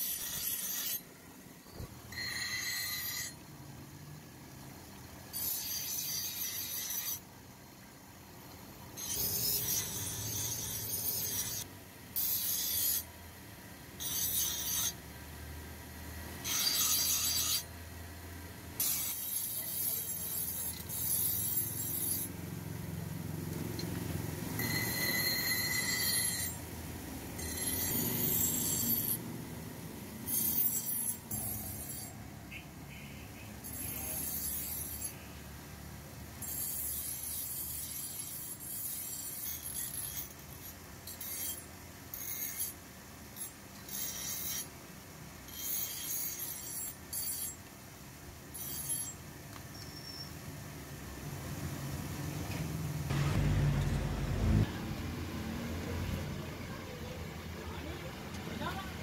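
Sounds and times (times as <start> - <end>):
knife grinding on wheel: 0.0 - 1.1, 2.1 - 3.5, 5.3 - 7.2, 9.0 - 13.1, 14.0 - 15.0, 16.4 - 17.7, 18.8 - 22.4, 23.5 - 29.3, 30.1 - 32.3, 33.6 - 35.3, 36.3 - 42.8, 43.4 - 44.7, 45.5 - 47.6, 48.5 - 49.2.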